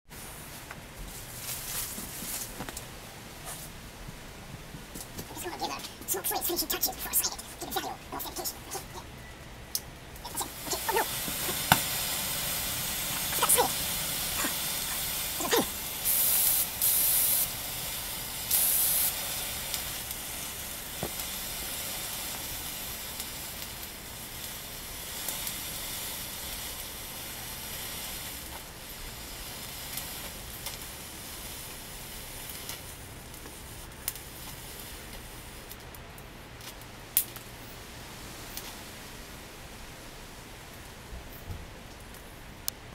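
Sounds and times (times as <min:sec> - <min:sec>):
pyrotechnic hissing: 0:00.1 - 0:35.8
crackles: 0:00.1 - 0:42.9
sharp pop: 0:11.2 - 0:12.0.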